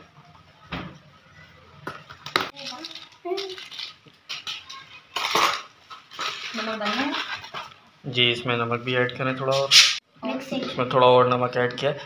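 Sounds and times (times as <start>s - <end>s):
utensils clinking on steel bowl: 2.5s - 7.7s.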